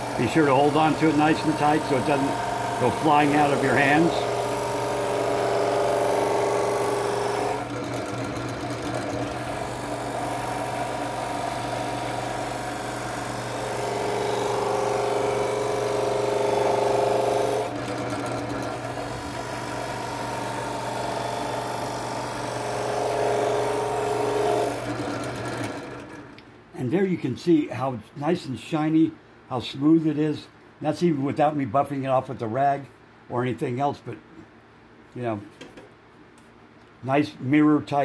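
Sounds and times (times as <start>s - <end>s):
drill press motor whirring: 0.0s - 26.4s.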